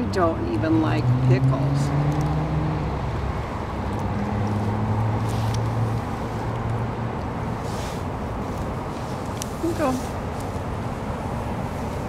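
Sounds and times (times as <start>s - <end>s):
soft rustle: 4.5s - 6.7s, 7.4s - 12.0s.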